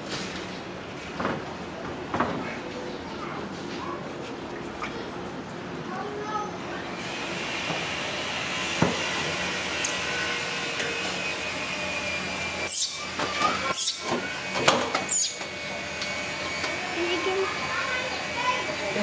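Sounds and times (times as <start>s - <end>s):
machine-like whir: 6.8s - 19.0s.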